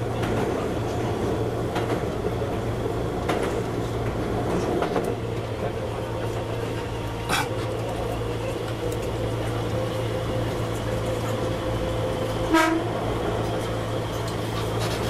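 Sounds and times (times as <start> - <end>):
moving train hum: 0.0 - 15.0
train horn toot: 12.4 - 13.1.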